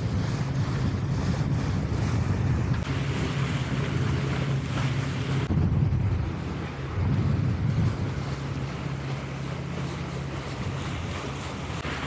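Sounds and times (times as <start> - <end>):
water washing along hull: 0.0 - 12.0
wind buffeting microphone: 0.0 - 12.0.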